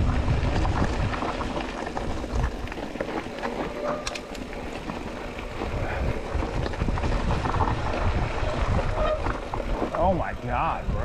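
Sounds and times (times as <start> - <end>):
wind on microphone: 0.0 - 2.7, 5.5 - 11.0
bike knocking and rattling: 0.0 - 11.0
bike tyres rolling over rock: 0.0 - 11.0.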